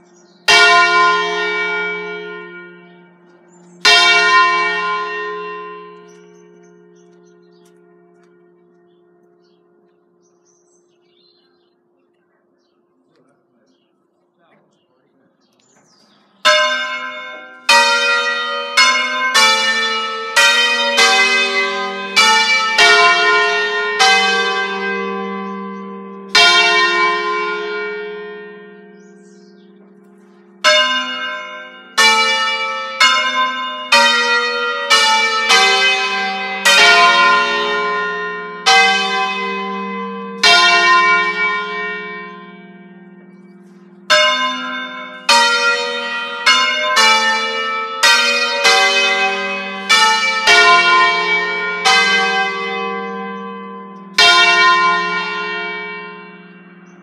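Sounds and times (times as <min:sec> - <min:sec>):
church bells ringing a melody: 0:00.0 - 0:57.0.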